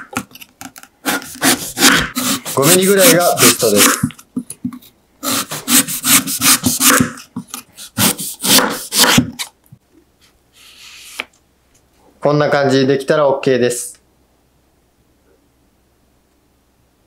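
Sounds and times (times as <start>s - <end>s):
knife slicing sweet potato: 1.0s - 4.2s, 5.2s - 9.5s.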